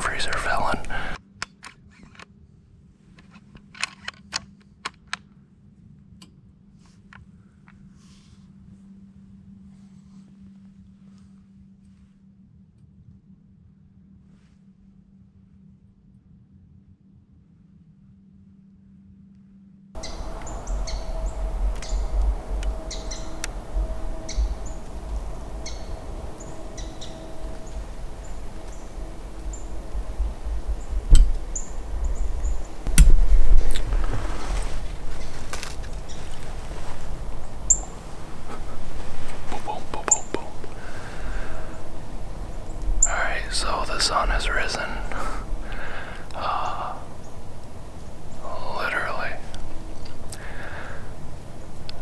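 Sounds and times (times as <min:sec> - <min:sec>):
birds calling: 0:00.0 - 0:01.2, 0:20.0 - 0:33.0, 0:33.6 - 0:52.0
faint steady hum: 0:00.0 - 0:52.0
high chip notes: 0:20.0 - 0:33.7
low rumble: 0:20.0 - 0:52.0.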